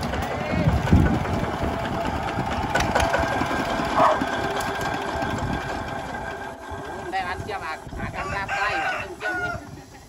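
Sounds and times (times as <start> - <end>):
diesel engine chugging: 0.0 - 8.3.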